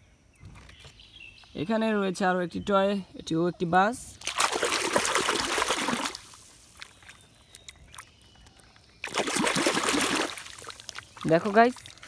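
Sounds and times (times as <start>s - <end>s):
water splashing and sloshing: 4.1s - 12.0s
water trickling and dripping: 4.2s - 12.0s.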